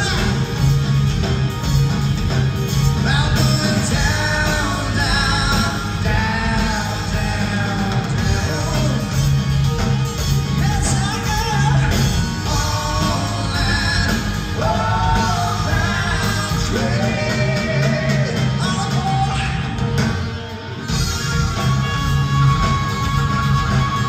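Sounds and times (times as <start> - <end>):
man singing: 0.0 - 0.7, 3.0 - 9.4, 10.5 - 19.8
bass guitar: 0.0 - 24.0
drums: 0.0 - 24.0
electric guitar: 0.0 - 24.0.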